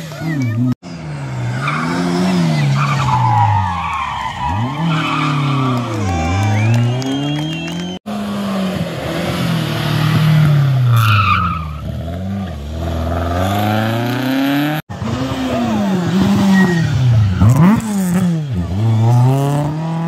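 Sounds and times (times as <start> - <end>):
rally car engines revving: 0.0 - 20.0
tyre squeal: 16.2 - 17.7.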